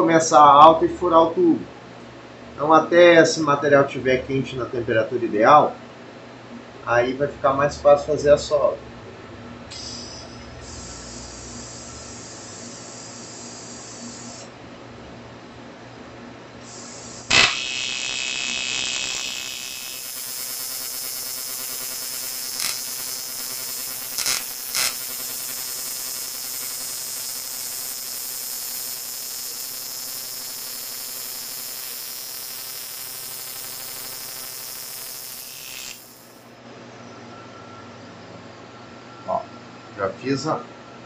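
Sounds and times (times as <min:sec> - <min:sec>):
welding arc buzzing and crackling: 0:09.7 - 0:14.6, 0:16.6 - 0:36.5
welding arc striking crack: 0:17.1 - 0:36.4.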